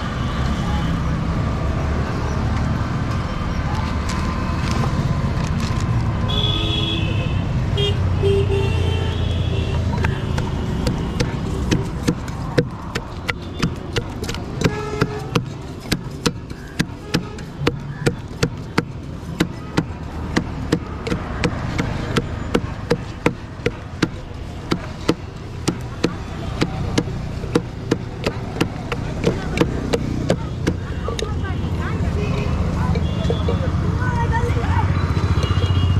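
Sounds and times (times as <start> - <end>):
wooden pestle knocking in steel tin: 10.3 - 30.8.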